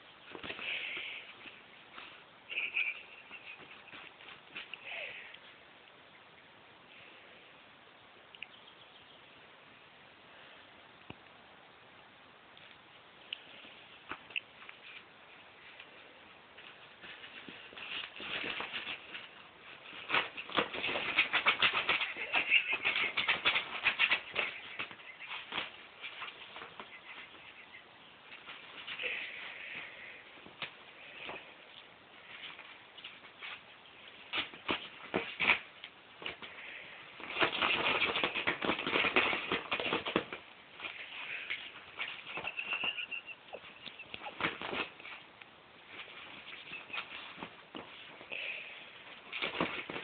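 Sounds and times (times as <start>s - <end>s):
fabric bag rustling and crinkling: 16.6s - 27.4s, 37.2s - 50.0s
puppy scratching at bag: 16.7s - 27.5s, 34.2s - 36.5s, 37.2s - 45.3s, 49.1s - 50.0s.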